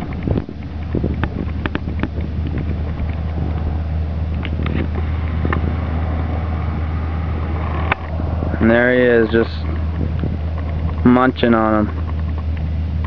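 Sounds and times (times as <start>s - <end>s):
faint clicks and ticks: 0.0s - 3.7s, 7.4s - 12.7s
steady low rumble: 0.0s - 13.0s.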